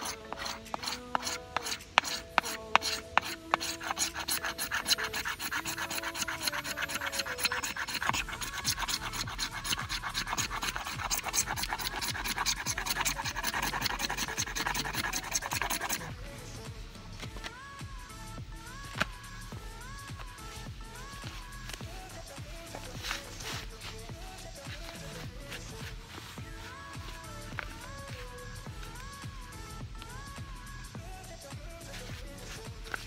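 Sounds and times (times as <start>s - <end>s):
fire steel scraping: 0.0s - 16.7s.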